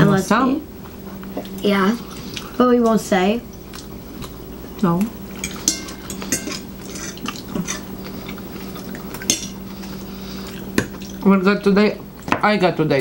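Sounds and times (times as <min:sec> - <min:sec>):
steady low hum: 0:00.0 - 0:13.0
forks clinking on plates: 0:05.4 - 0:07.9, 0:09.1 - 0:09.6.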